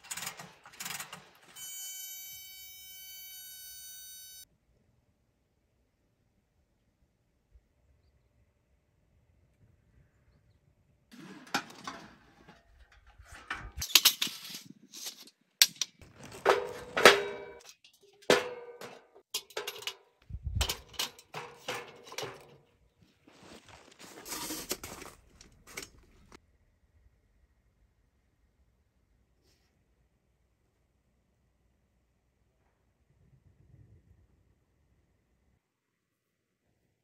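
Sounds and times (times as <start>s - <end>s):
ringing metal clank: 16.5s - 20.0s.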